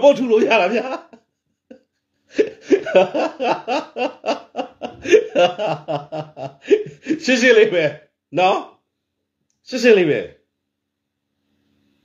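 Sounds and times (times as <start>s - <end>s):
man laughing heartily: 0.1s - 7.4s.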